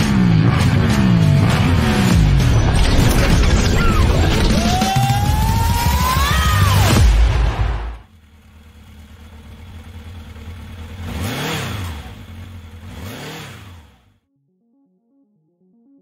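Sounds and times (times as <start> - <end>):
motorcycle engine revving: 0.0 - 2.6, 4.5 - 14.2.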